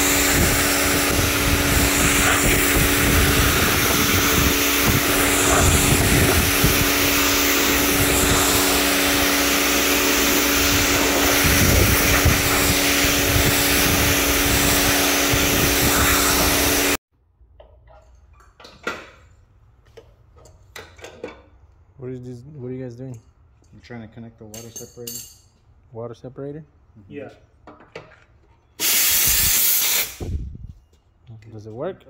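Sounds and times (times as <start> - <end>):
pressure washer spraying: 0.0 - 17.0, 28.8 - 30.2.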